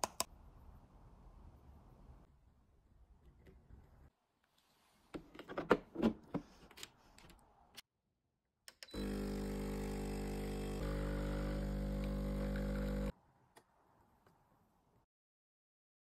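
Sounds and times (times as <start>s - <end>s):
espresso machine pump humming: 9.0s - 13.1s.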